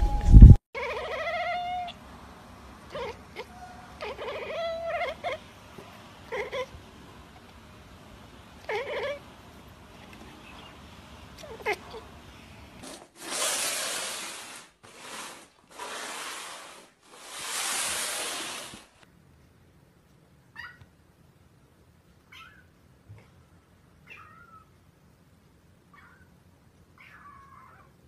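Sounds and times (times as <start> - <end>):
cat meowing: 0.8 - 2.0, 2.9 - 5.4, 6.3 - 6.8, 8.6 - 9.2, 24.0 - 24.7, 27.0 - 27.9
kitten mewing: 2.9 - 5.4, 6.2 - 6.8
loud bursts of rushing noise: 13.2 - 19.0.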